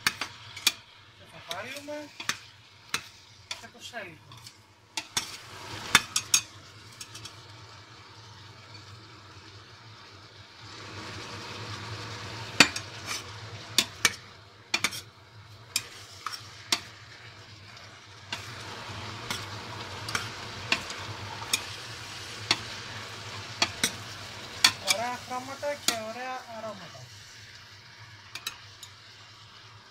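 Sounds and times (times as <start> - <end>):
vegetables sizzling in oil: 0.0 - 29.9
metal spoon clinking against pot: 13.8 - 15.0, 28.4 - 28.9.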